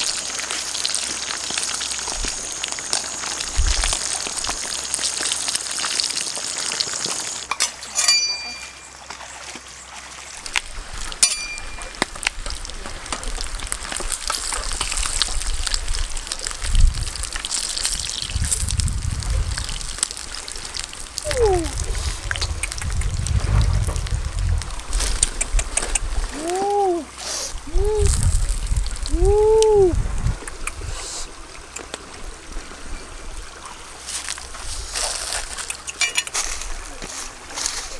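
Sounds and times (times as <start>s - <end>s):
frying oil sizzling and crackling: 0.0s - 37.9s
low rumble: 15.1s - 25.5s.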